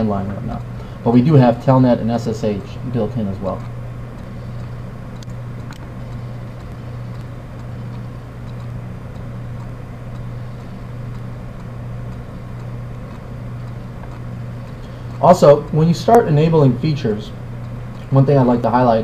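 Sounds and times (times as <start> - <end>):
background hiss: 0.0 - 19.0
low electrical hum: 0.0 - 19.0
faint clicks: 3.6 - 15.8.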